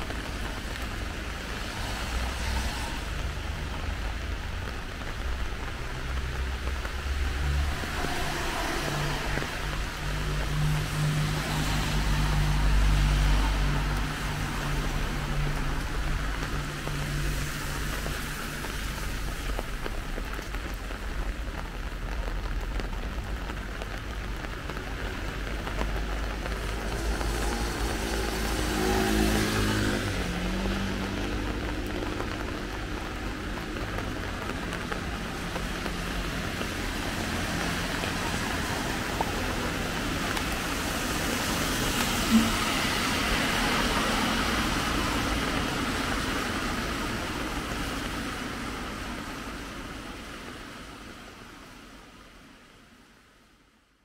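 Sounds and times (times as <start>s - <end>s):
rain: 0.0s - 54.0s
traffic: 0.0s - 54.0s
vehicle engine passing: 26.6s - 33.0s, 35.2s - 46.0s.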